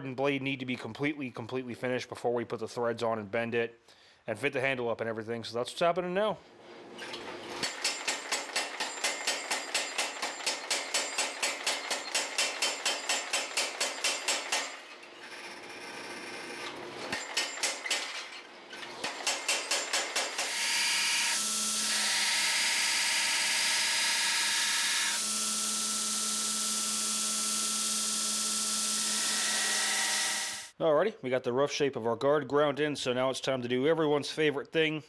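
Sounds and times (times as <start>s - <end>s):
power hammer pounding iron: 7.6s - 14.9s, 17.2s - 18.2s, 19.0s - 20.7s
belt grinder grinding metal: 7.6s - 18.1s, 18.8s - 30.8s.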